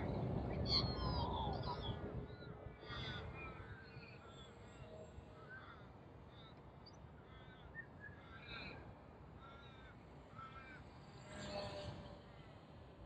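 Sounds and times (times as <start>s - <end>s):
wind rumble on microphone: 0.0s - 4.0s
distant magpies warbling: 0.5s - 11.8s.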